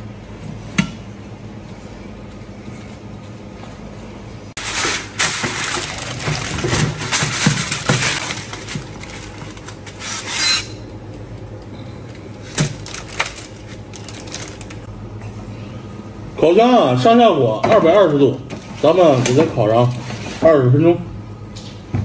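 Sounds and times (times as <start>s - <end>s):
aluminium foil crinkling: 4.6s - 10.8s, 12.1s - 14.9s.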